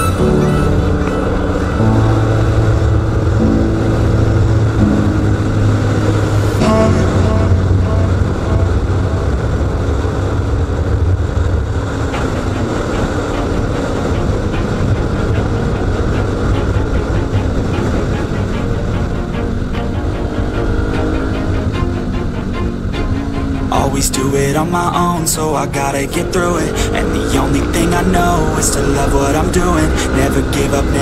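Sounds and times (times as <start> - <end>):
motorcycle engine running: 0.0 - 23.7
wind noise on microphone: 0.0 - 31.0.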